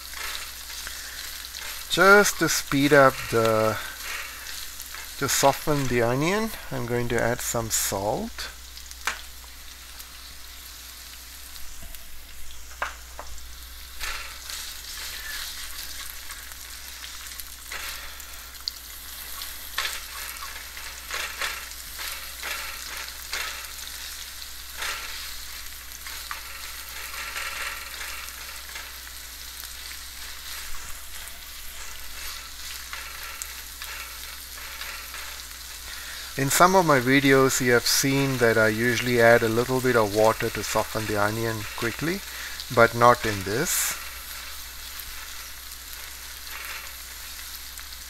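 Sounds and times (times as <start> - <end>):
onions sizzling in hot oil: 0.0 - 48.0
spatula scraping and tapping wok: 19.1 - 36.4.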